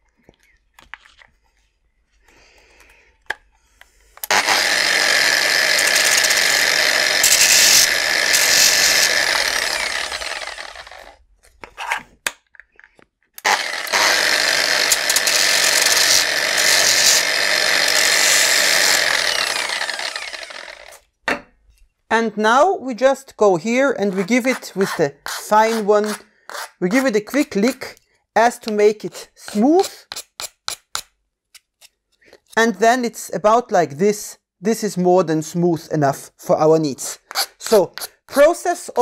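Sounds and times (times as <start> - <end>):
angle grinder grinding plastic: 4.2 - 12.2, 13.4 - 21.1, 24.0 - 27.8, 37.2 - 38.5.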